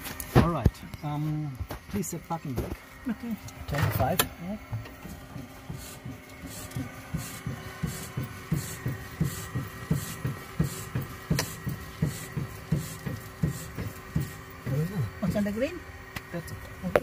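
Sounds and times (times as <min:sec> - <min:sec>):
machine throbbing rhythmically: 0:04.4 - 0:16.4.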